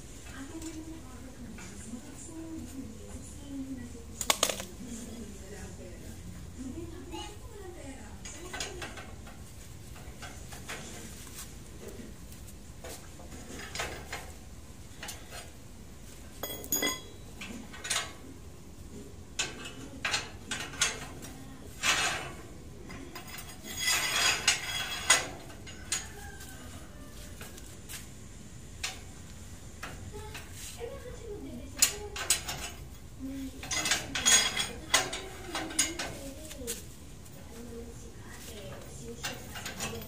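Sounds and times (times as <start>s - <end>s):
metal clinks and clanks: 16.4s - 17.2s, 23.2s - 26.1s, 33.6s - 36.2s, 39.2s - 40.0s.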